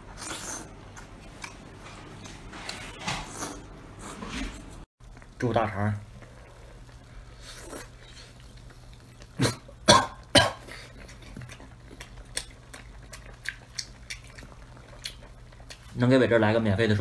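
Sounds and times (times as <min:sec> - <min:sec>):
man coughing: 0:09.4 - 0:10.8
chopsticks clicking and chewing: 0:11.0 - 0:15.9.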